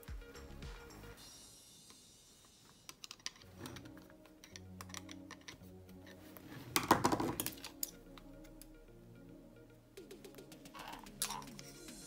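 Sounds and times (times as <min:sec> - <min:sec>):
screwdriver tapping on metal mechanism: 0:04.4 - 0:05.6.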